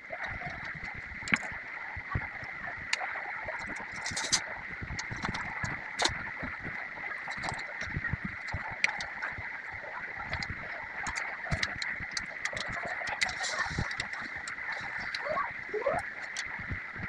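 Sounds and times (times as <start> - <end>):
steady high hiss: 13.2 - 16.6.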